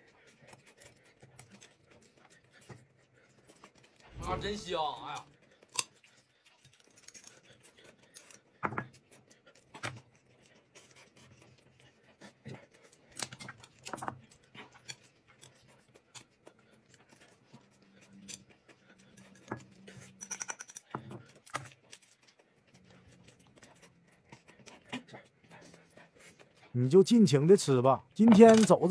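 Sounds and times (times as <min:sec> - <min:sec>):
chewing and biting food: 0:00.0 - 0:04.2, 0:05.2 - 0:28.9
chopsticks clicking on plates: 0:19.2 - 0:21.6.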